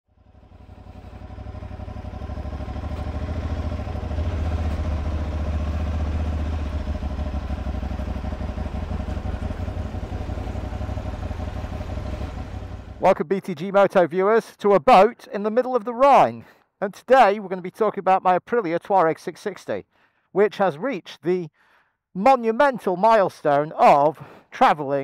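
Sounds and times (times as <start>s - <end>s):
engine running at low revs: 0.1s - 13.1s.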